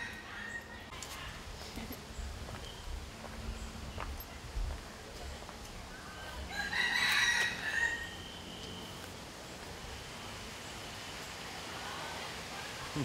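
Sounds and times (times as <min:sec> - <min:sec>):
rooster crowing: 0:00.0 - 0:00.8, 0:06.5 - 0:08.2.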